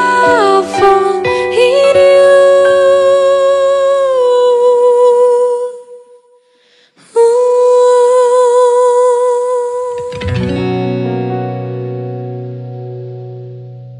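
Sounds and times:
woman singing long held notes: 0:00.0 - 0:06.4, 0:07.0 - 0:10.2.

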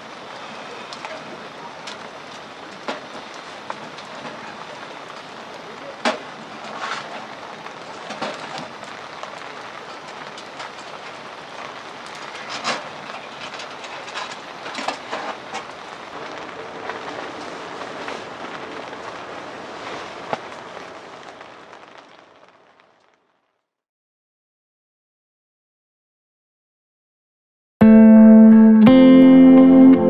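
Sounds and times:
wood fire crackling and popping: 0:00.0 - 0:23.7.

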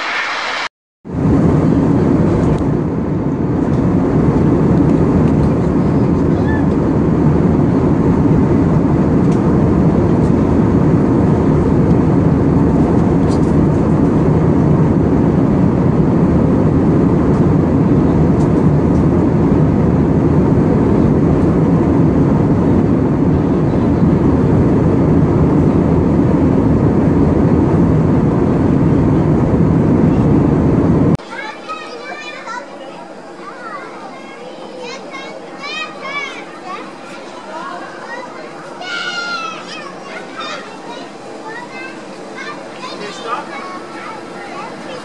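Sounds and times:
airliner cabin engine and airflow noise: 0:00.0 - 0:45.0.

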